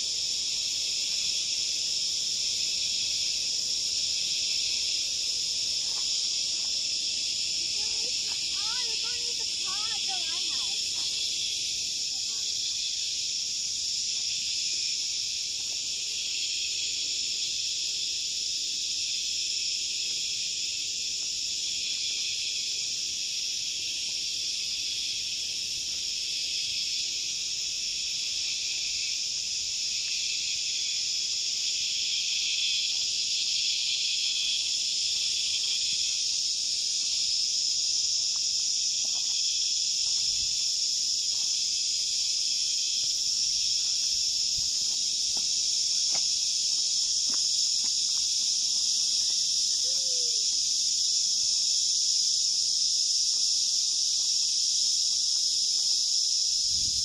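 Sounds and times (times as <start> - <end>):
insects shrilling chorus: 0.0 - 57.0.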